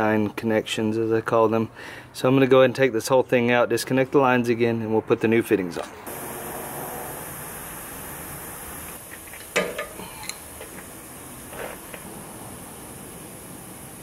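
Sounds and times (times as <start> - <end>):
faint steady hiss: 5.7 - 14.0
metal fittings clinking: 9.1 - 10.9.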